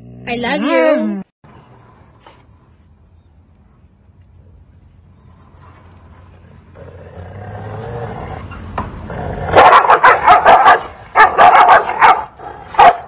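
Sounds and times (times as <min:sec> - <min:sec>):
dogs barking aggressively: 0:08.2 - 0:13.0.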